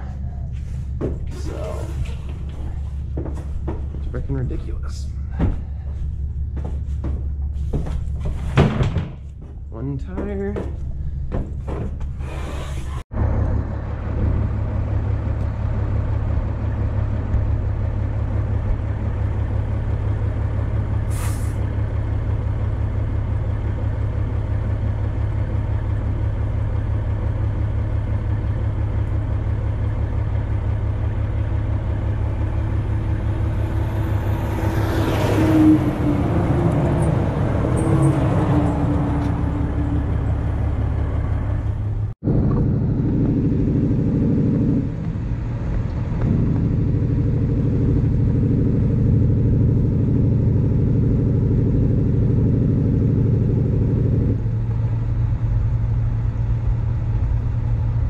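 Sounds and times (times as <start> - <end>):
truck engine and tyres rumbling: 0.0 - 58.0
oncoming truck rushing past: 29.7 - 58.0.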